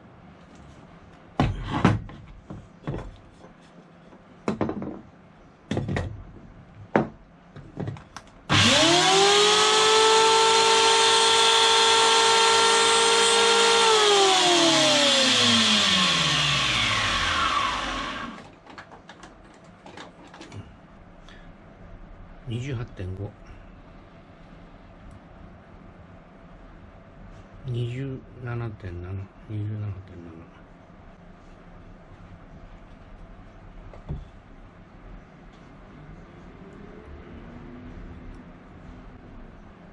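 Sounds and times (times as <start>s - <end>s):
electric planer motor whining: 8.5s - 18.4s.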